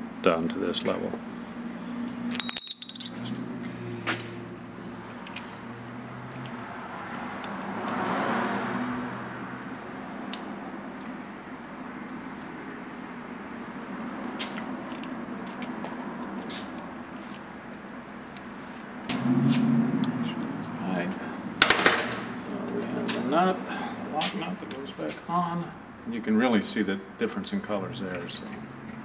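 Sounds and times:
metal clinking: 0:02.3 - 0:03.4
steady low hum: 0:10.6 - 0:26.3.

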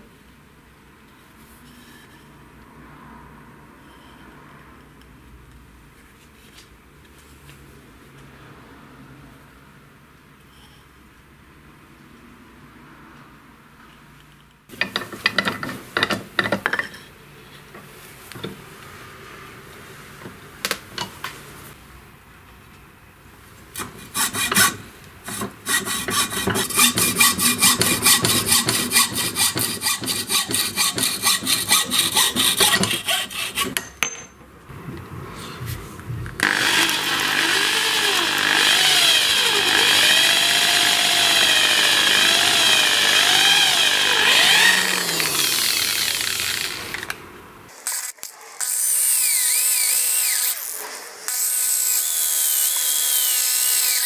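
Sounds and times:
hacksaw cutting wood: 0:23.8 - 0:33.8, 0:36.4 - 0:47.2, 0:47.8 - 0:54.0
electric drill whining: 0:36.4 - 0:47.1.

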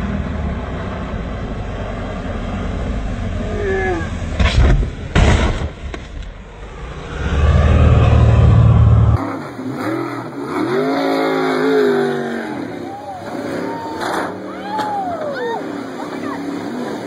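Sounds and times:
heavy low rumble: 0:00.0 - 0:09.2.

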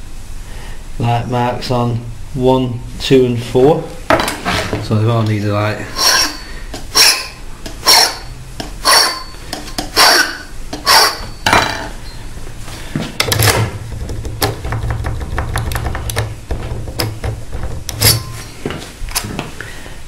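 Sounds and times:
hand file on metal key: 0:06.0 - 0:09.3, 0:10.0 - 0:11.3.

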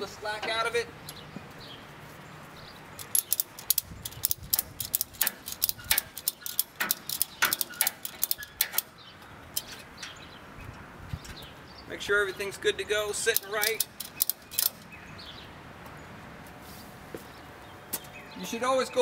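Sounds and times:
ratchet strap clicking: 0:03.0 - 0:10.2, 0:13.3 - 0:14.9.

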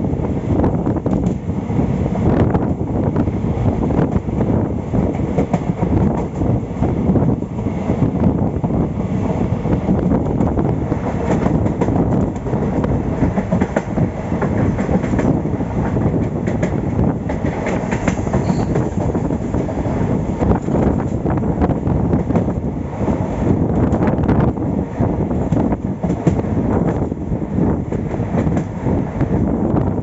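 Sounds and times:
train rumble: 0:00.0 - 0:30.0.

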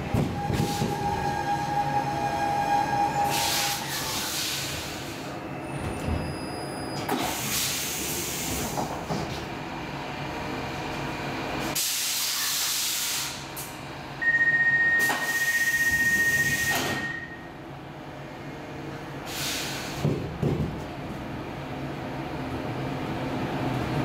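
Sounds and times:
steady high beep: 0:14.2 - 0:17.5
compressed air hissing: 0:19.3 - 0:20.0.

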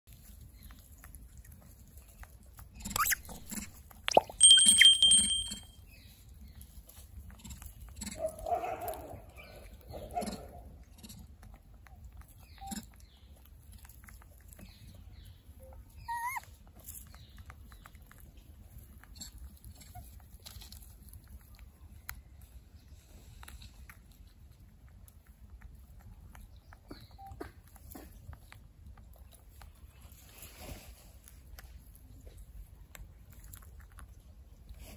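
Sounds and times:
monkey chewing with crunches: 0:00.1 - 0:34.9
animal calls: 0:02.8 - 0:03.7, 0:15.7 - 0:16.5.

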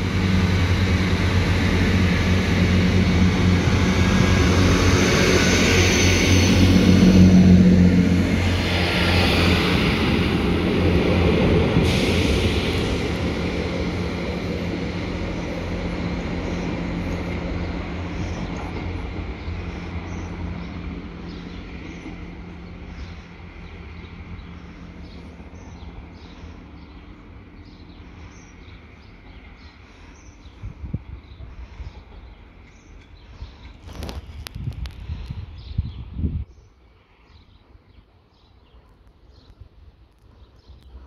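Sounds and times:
wheels rumbling on rails: 0:00.0 - 0:36.5
diesel train engine drone: 0:00.0 - 0:41.0.

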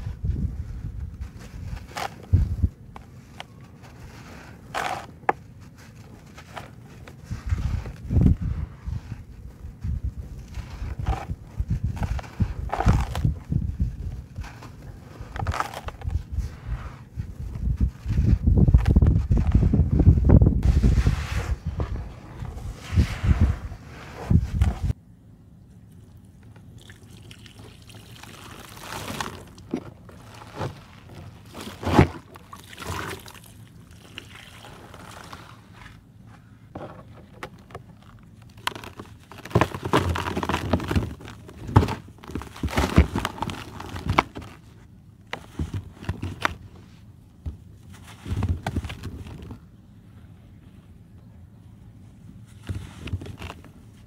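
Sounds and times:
dry soil crumbling: 0:00.0 - 0:23.6, 0:25.9 - 0:36.1, 0:36.8 - 0:46.8
water pouring and splashing: 0:26.8 - 0:29.6, 0:32.4 - 0:35.4.

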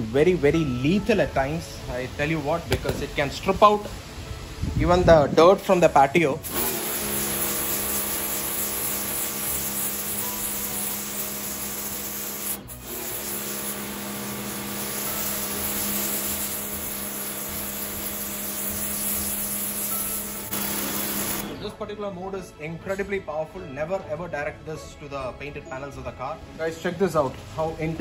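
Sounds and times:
water jet hissing on mat: 0:06.4 - 0:21.6
pressure washer pump humming: 0:06.4 - 0:21.7.

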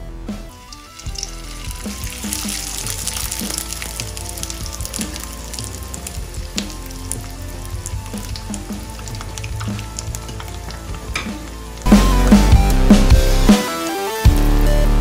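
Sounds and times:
food sizzling in hot oil: 0:00.5 - 0:12.0.

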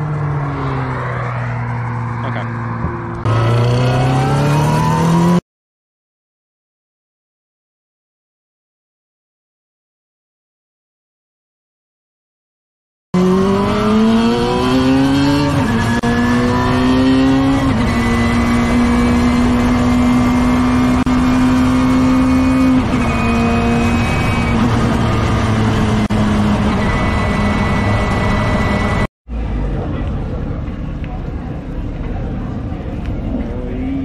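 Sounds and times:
racecar engine accelerating: 0:00.0 - 0:05.4, 0:13.2 - 0:34.0.

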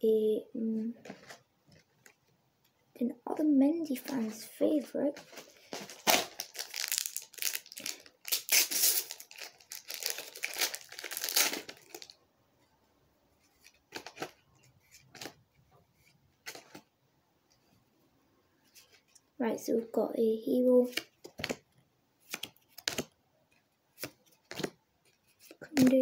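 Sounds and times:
cards rustling and clicking: 0:05.1 - 0:12.1, 0:13.6 - 0:15.4, 0:16.4 - 0:16.9, 0:20.8 - 0:21.7, 0:22.3 - 0:23.1, 0:24.0 - 0:26.0
foil packet tearing and crinkling: 0:05.2 - 0:12.2.

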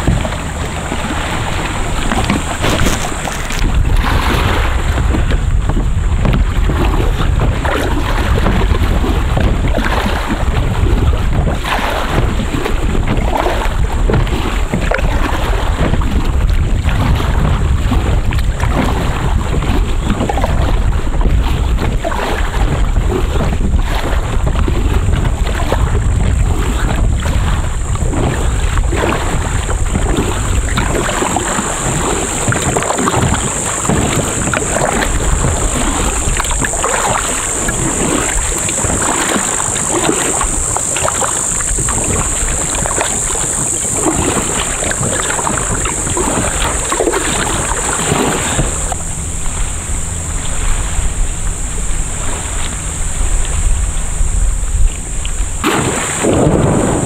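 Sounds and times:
water splashing around kayak: 0:00.0 - 0:57.0
wind buffeting microphone: 0:00.0 - 0:57.0
high-pitched whine: 0:26.4 - 0:57.0.

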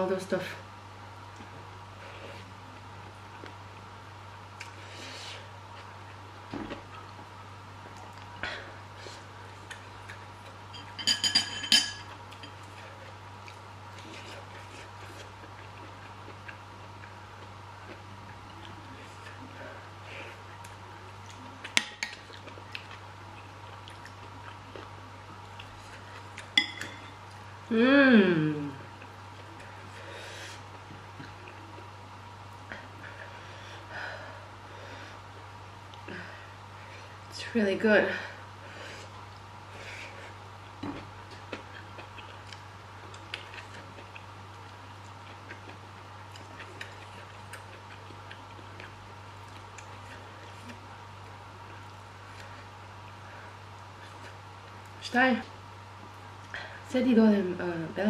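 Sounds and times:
low steady hum: 0:00.0 - 0:58.0
metal fork clinking on glass: 0:10.8 - 0:12.1
quiet chewing: 0:12.1 - 0:27.5, 0:39.0 - 0:55.0.

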